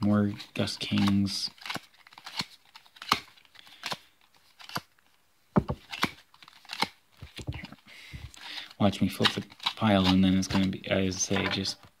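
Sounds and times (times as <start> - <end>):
papery rustle of cards: 0.3 - 5.2, 5.8 - 11.4
cards slapping and snapping: 0.8 - 7.6, 8.4 - 10.8.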